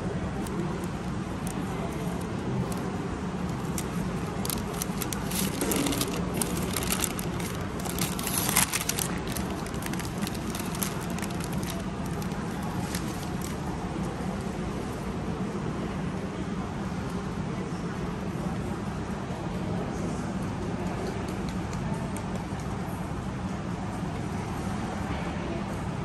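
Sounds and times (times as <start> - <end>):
steady background hum: 0.0 - 26.0
paper bag crinkling and rustling: 0.4 - 13.7.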